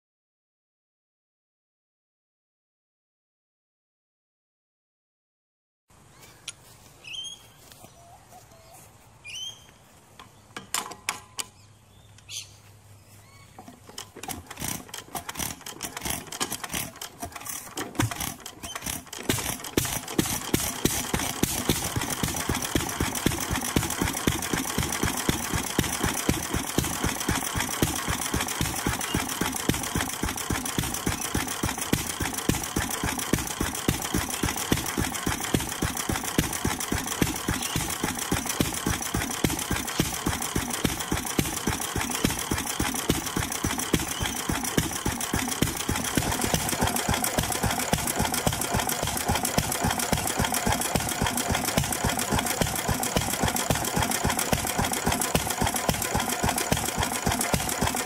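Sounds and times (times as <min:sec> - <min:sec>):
birds chirping faintly: 0:06.0 - 0:13.9
stationary engine knocking: 0:13.6 - 0:58.0.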